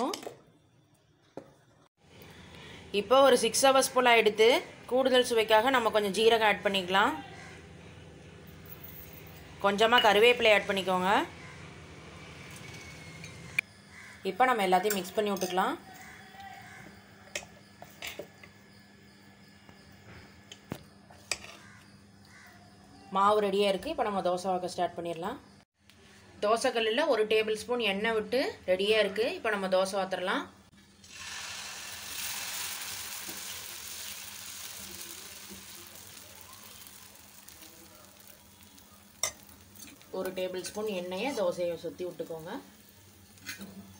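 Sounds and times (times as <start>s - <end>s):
batter squelching: 32.0s - 43.5s.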